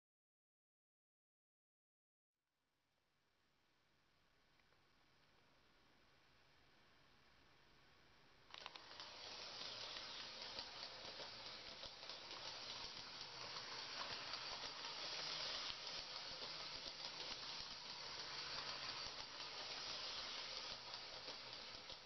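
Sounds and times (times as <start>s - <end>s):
model train motor whirring hiss: 6.7s - 22.0s.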